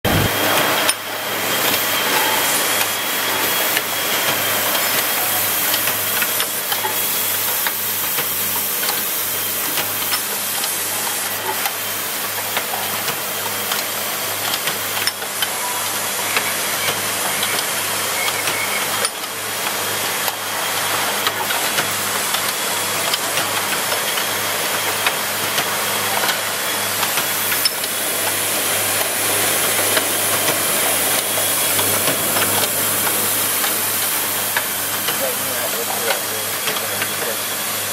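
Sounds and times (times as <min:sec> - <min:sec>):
pneumatic grippers clicking and knocking: 0:00.1 - 0:37.8
machine low hum: 0:26.0 - 0:37.7.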